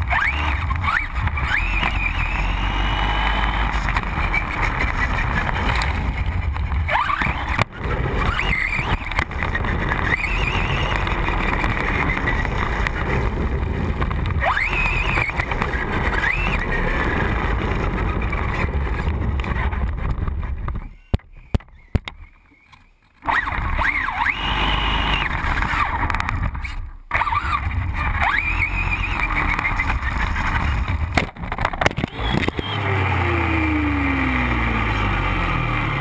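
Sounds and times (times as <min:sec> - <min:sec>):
electric motor whining: 0:00.0 - 0:19.5, 0:23.2 - 0:26.1, 0:27.1 - 0:30.8
wind rushing over camera: 0:00.0 - 0:34.8.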